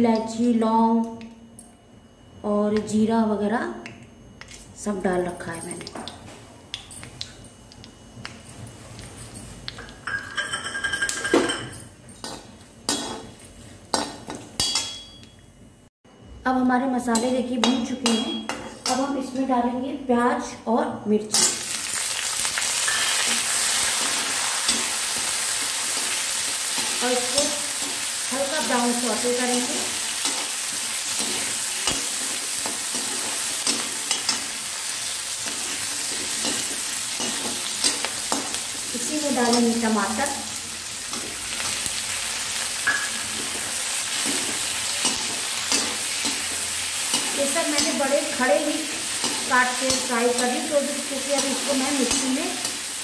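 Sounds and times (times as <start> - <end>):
spices sizzling in oil: 21.3 - 53.0.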